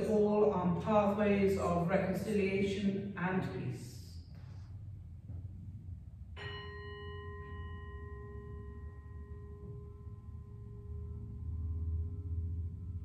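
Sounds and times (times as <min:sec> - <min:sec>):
low steady hum: 0:00.0 - 0:13.0
bell ringing: 0:06.4 - 0:11.1.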